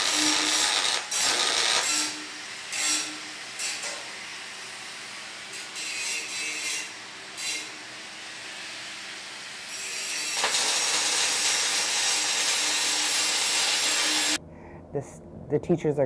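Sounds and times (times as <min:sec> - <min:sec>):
welding arc hissing: 0:00.0 - 0:02.2, 0:09.8 - 0:14.4.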